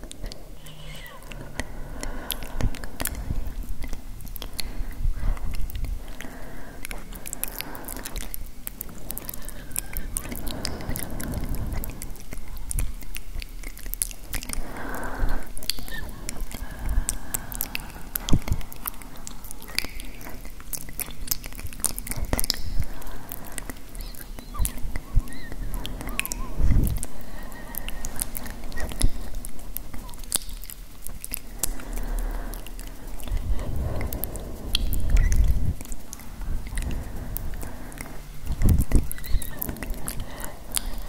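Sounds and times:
soft breathing: 0.0 - 41.0
wet mouth clicks and smacks: 0.0 - 41.0.

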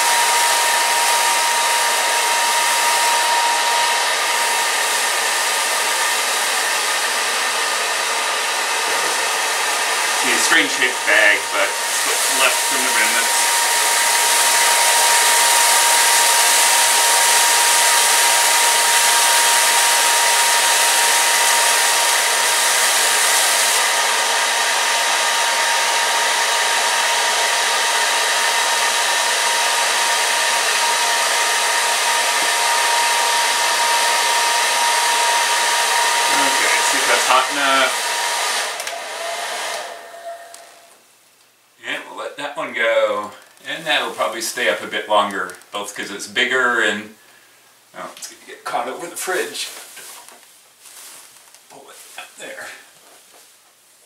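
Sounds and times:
hair dryer blowing: 0.0 - 41.0
plastic bag rustling: 49.5 - 53.6.

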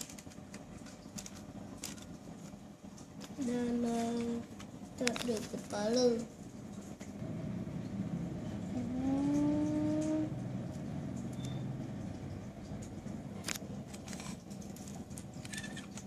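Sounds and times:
steady low hum: 0.0 - 16.0
held tone rising in pitch: 8.7 - 10.4.

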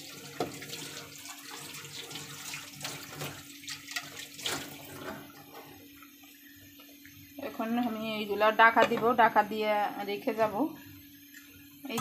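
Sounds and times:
low steady hum: 4.6 - 12.0.

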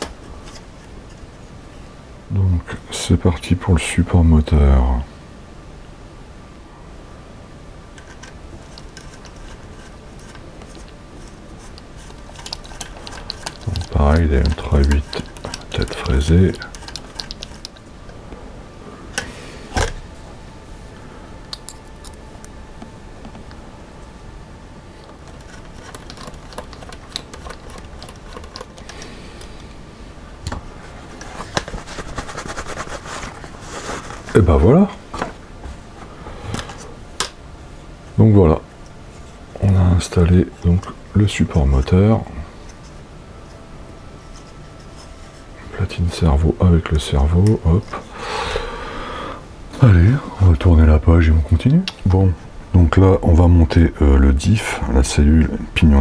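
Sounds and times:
hex driver clicking: 8.0 - 17.9
screwdriver clicking on small screws: 11.6 - 17.8, 25.0 - 29.0
cloth rustling: 30.5 - 37.0.

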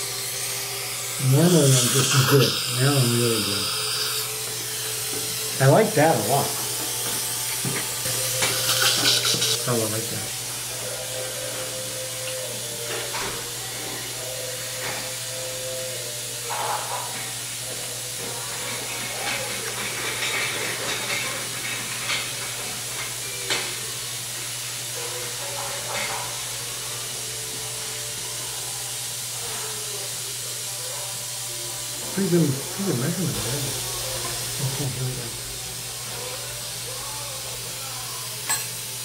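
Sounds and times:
steady hiss: 0.0 - 10.2.

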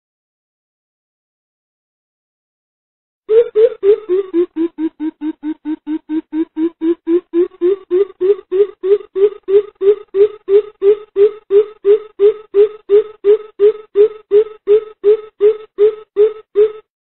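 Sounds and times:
bird deep hooting call: 3.3 - 16.8.

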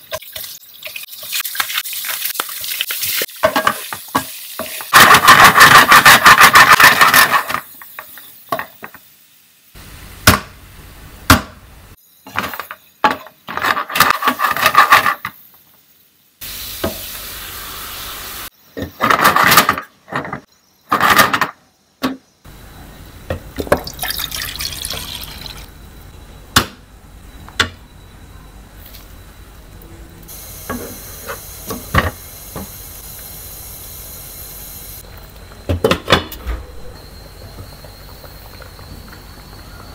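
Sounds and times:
prawns frying in a pan: 0.0 - 10.2, 16.4 - 18.5
liquid pouring into a pan: 23.7 - 25.7.

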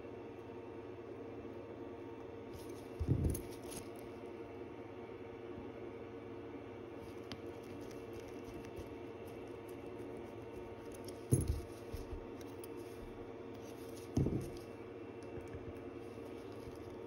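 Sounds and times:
dull knocks on bench: 14.1 - 14.6.

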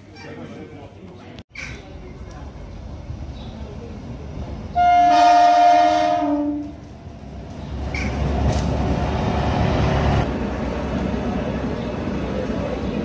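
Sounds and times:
train wheels rumbling: 1.8 - 13.0
train horn: 4.8 - 6.8.

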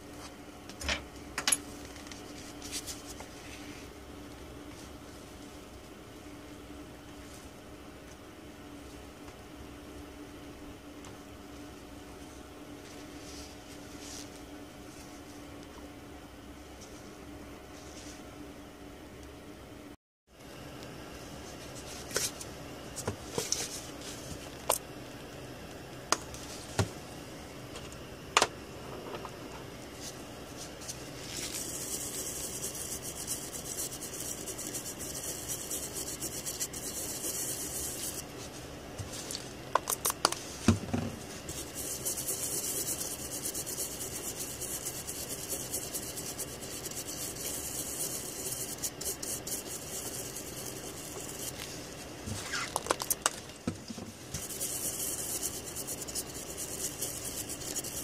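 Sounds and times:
bristle brush scrubbing: 30.0 - 39.3, 41.2 - 52.0, 54.4 - 58.0.

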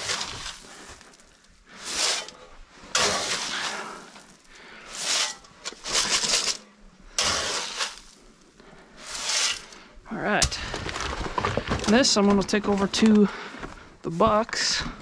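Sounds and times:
grain rattling from scoop: 3.0 - 6.6.

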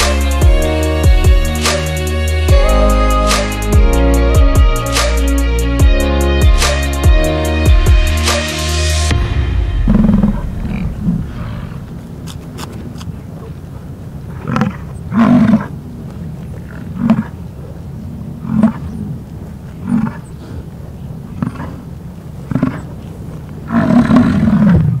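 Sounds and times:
low rumble: 5.7 - 14.4
bison bellowing: 9.9 - 25.0.

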